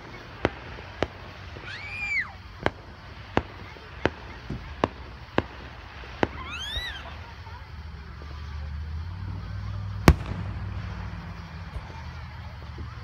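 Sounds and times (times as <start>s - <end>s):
firework whistle: 0.0s - 7.4s
fireworks banging: 0.0s - 13.0s.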